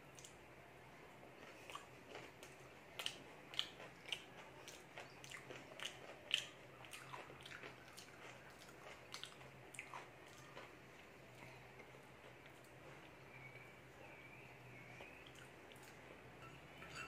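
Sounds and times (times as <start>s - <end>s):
person chewing: 1.4s - 13.2s.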